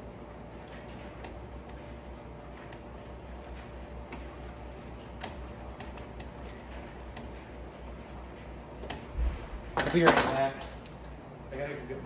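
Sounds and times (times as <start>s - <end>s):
low hum: 7.9s - 9.9s.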